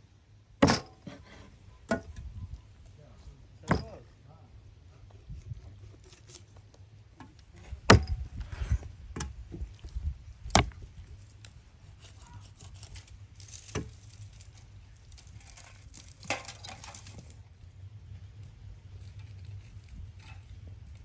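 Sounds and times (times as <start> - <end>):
cleaver chopping on wooden board: 3.7 - 3.9, 7.9 - 8.2, 10.5 - 10.8.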